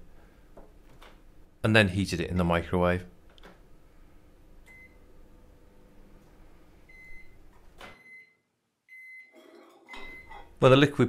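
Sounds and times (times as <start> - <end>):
microwave hum: 3.2 - 8.2
microwave beeps: 4.7 - 5.1, 6.9 - 10.5.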